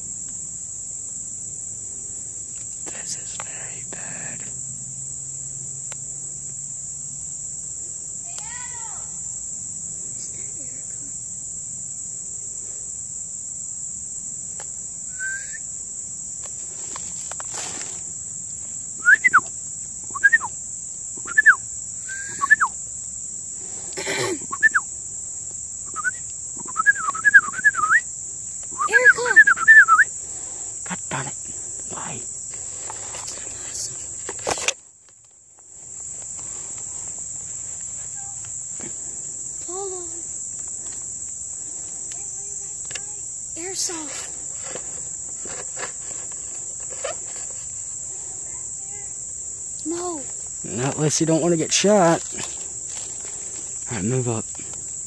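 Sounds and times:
insect chorus drone: 0.0 - 55.0
loud short chirps: 15.1 - 15.6, 21.2 - 22.8
footsteps in leaf litter: 16.6 - 18.1.

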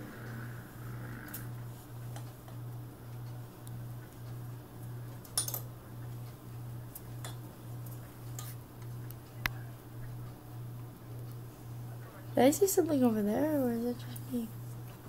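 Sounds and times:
pulsing low hum: 0.0 - 4.8.

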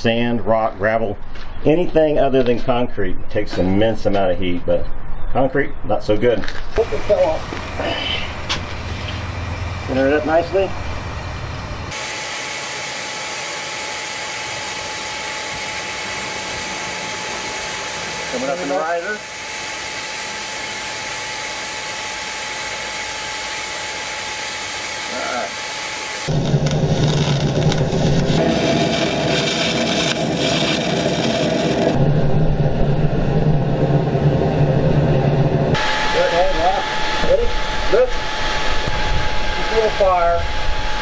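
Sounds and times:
welder arc crackling: 6.8 - 32.0
faint steady whine: 6.8 - 41.0
furnace burner and blower hissing: 6.8 - 41.0.

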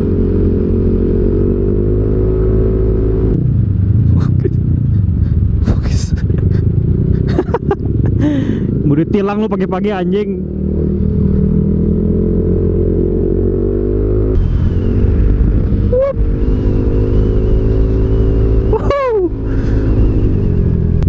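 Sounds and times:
road rumble: 0.0 - 21.0
wind: 0.0 - 21.0
brief falling tone: 14.4 - 17.6.

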